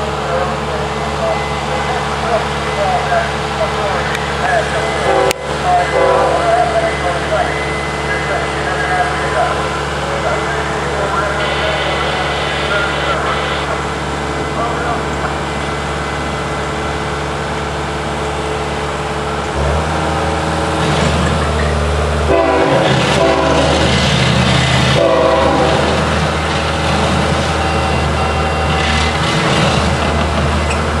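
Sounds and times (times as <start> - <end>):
locomotive engine drone: 0.0 - 31.0
train horn blasts: 5.0 - 6.6, 22.3 - 23.9, 24.9 - 26.1.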